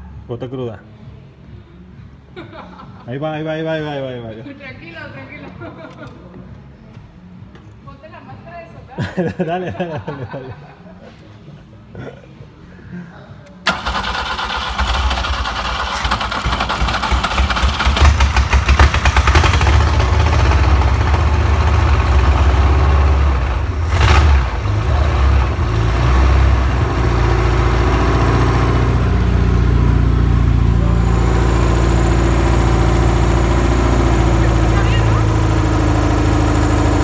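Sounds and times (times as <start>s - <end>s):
car engine revving and idling: 14.8s - 37.0s.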